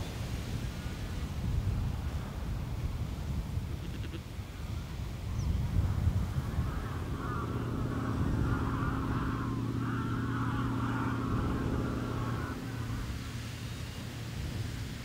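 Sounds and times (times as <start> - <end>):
steady low hum: 4.7 - 15.0
flock of geese honking: 6.2 - 13.9.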